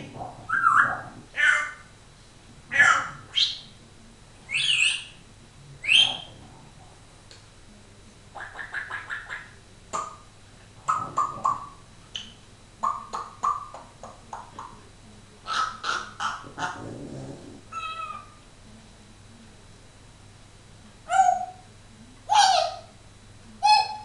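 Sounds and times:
parrot calling: 0.4s - 1.9s, 2.7s - 3.7s, 4.5s - 5.2s, 5.8s - 6.4s, 8.4s - 11.8s, 12.8s - 13.9s, 15.4s - 16.8s, 17.7s - 18.4s, 21.1s - 21.6s, 22.3s - 22.9s, 23.6s - 24.0s.

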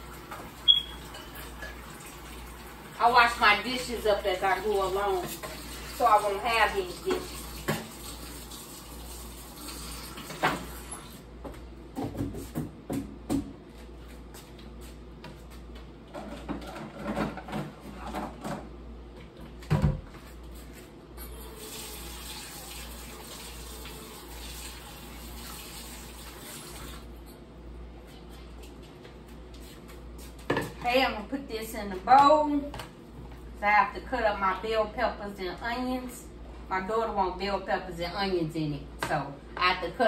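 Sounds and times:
tap running into sink: 7.1s - 8.1s.

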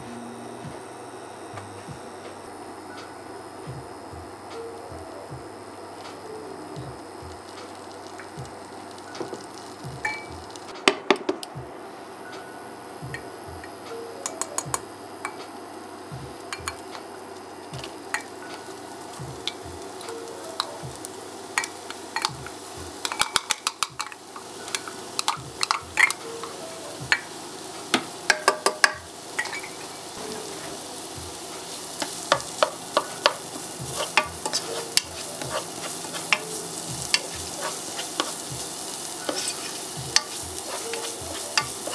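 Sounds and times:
shallots and garlic frying: 0.0s - 41.9s
butter sizzling in a pot: 2.4s - 10.8s, 11.4s - 41.9s
utensils tapping against pot: 9.2s - 11.5s, 13.1s - 15.6s, 16.4s - 17.1s, 17.7s - 30.7s, 31.6s - 41.9s.

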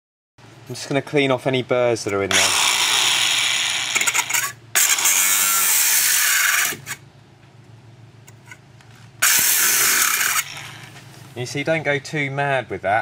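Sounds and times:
angle grinder grinding steel: 2.3s - 7.0s, 9.2s - 11.0s.

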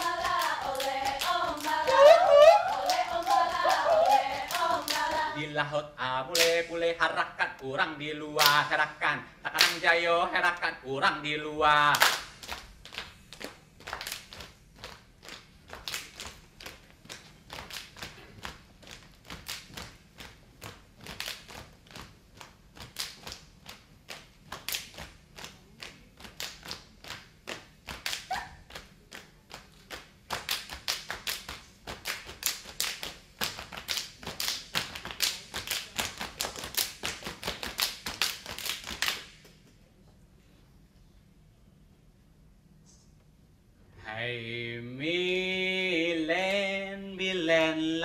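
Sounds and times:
people clapping in unison: 0.0s - 5.4s, 6.3s - 6.8s, 8.4s - 8.8s, 9.5s - 9.9s, 11.9s - 39.5s.

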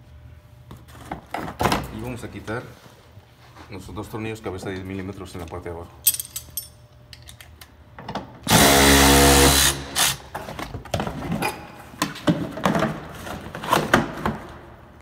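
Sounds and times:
clicks and knocks of tools: 5.5s - 8.2s.

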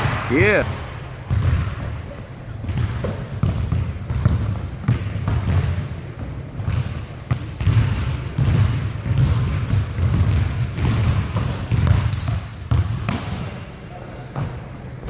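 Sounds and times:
basketballs bouncing on hardwood floor: 1.3s - 1.9s, 2.6s - 13.4s
sneakers squeaking: 1.3s - 4.6s, 6.7s - 11.0s, 11.7s - 14.6s.

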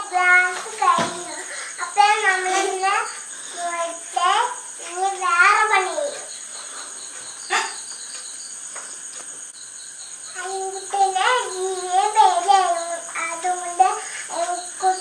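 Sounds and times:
child singing: 0.0s - 6.3s, 10.3s - 15.0s
insects chirping: 0.0s - 15.0s.

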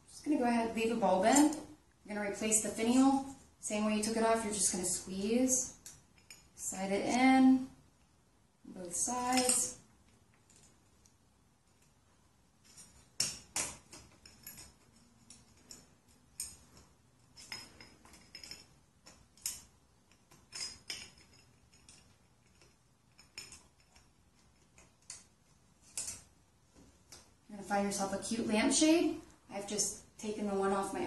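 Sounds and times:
metallic clicks and clinks: 5.7s - 7.4s, 9.1s - 12.0s, 12.6s - 26.4s.

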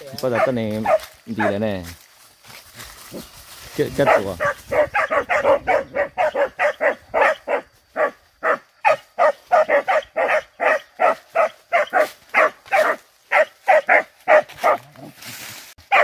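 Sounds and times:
dogs barking rapidly: 0.2s - 1.6s, 4.0s - 14.9s.

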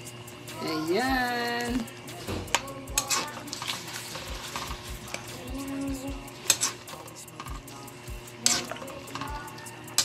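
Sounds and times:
metal spoon scraping a pan: 2.5s - 10.0s.

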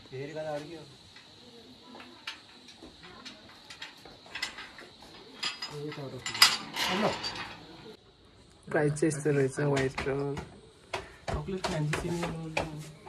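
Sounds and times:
dishes and utensils clinking: 2.2s - 8.0s.

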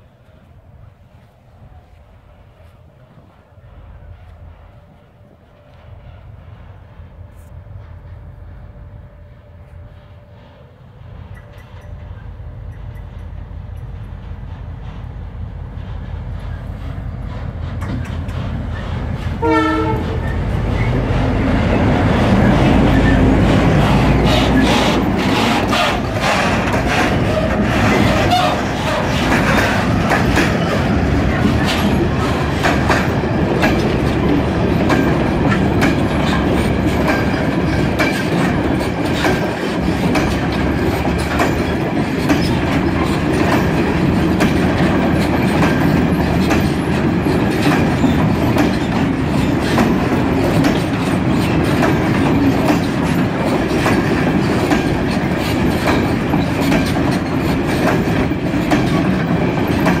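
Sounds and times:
train wheels rumbling: 0.0s - 60.0s
wheels clacking over rail joints: 15.8s - 60.0s.

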